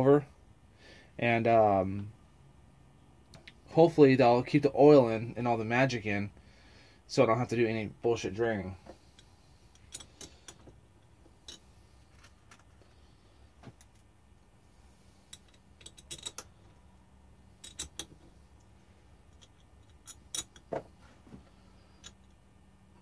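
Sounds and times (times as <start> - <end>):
small bolts clicking and rattling: 9.0 - 14.1, 14.9 - 22.5.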